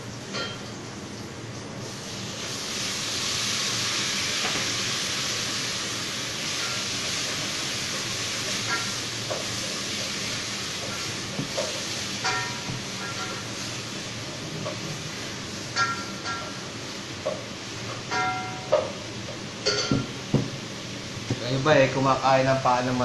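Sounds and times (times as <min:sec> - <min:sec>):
pan sizzling: 0:01.9 - 0:23.0
kitchenware clinking: 0:12.2 - 0:13.4, 0:19.6 - 0:20.2.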